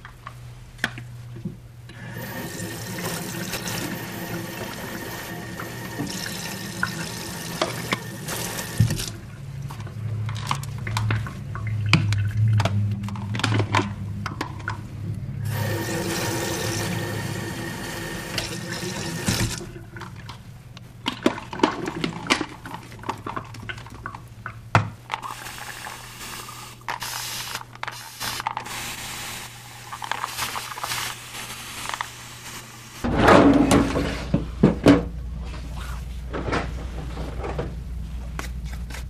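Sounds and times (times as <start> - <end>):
tap water running into bottle: 1.9 - 9.3, 15.5 - 20.2.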